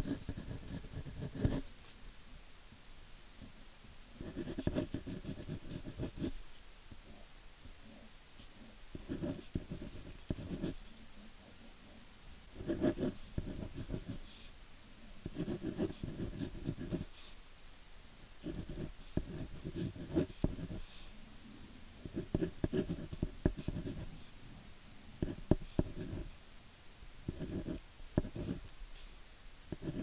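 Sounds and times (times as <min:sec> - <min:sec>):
drawing stylus scribbling: 0:00.0 - 0:01.7, 0:04.2 - 0:06.4, 0:09.0 - 0:10.8, 0:12.6 - 0:14.3, 0:15.2 - 0:17.3, 0:18.4 - 0:21.0, 0:22.0 - 0:24.2, 0:25.2 - 0:26.3, 0:27.3 - 0:28.7, 0:29.7 - 0:30.0.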